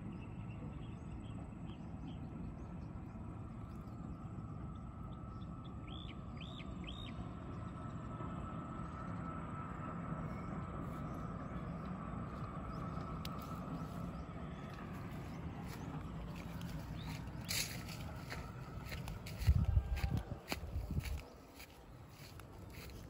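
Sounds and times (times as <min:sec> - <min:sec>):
faint steady whine: 0:00.0 - 0:23.0
low outdoor rumble: 0:00.0 - 0:23.0
bird chirping: 0:05.1 - 0:07.3, 0:10.2 - 0:19.8.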